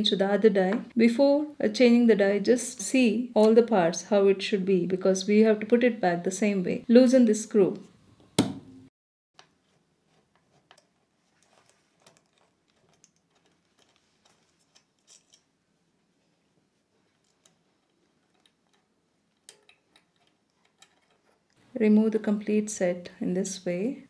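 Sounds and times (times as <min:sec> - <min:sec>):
small metal clicks and taps: 0:10.7 - 0:15.4, 0:17.2 - 0:21.2.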